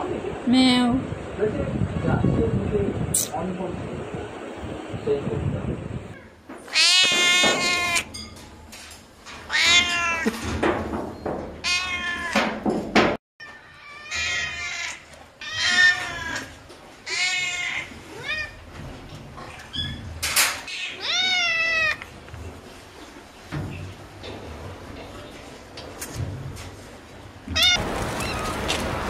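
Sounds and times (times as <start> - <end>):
cats meowing: 6.2 - 8.1, 9.5 - 10.4, 11.6 - 12.5, 13.4 - 18.6, 20.7 - 22.1, 27.5 - 28.7.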